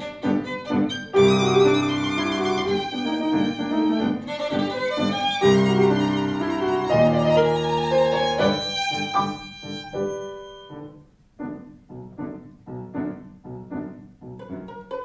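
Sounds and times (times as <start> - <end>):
violin: 0.0 - 11.0, 14.4 - 15.0
piano accompaniment: 0.0 - 15.0.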